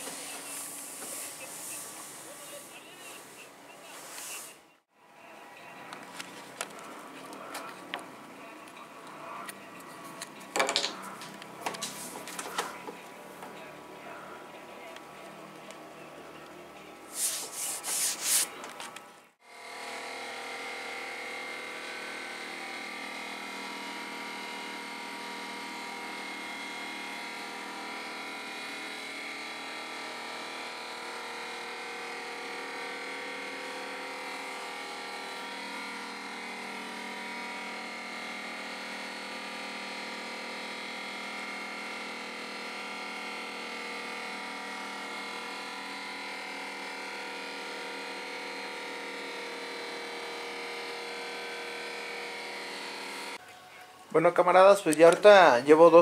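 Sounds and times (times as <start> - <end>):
orbital sander running: 19.4 - 53.4.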